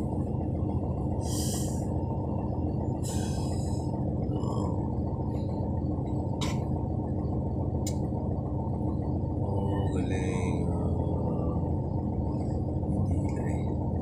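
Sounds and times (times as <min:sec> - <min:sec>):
muffled garbage truck rumble: 0:00.0 - 0:14.0
short hisses: 0:01.2 - 0:01.8.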